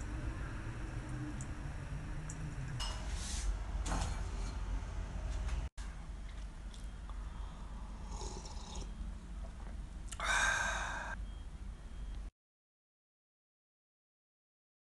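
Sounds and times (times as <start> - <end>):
man sipping soup: 7.1 - 8.9
breathy sound: 10.1 - 11.2.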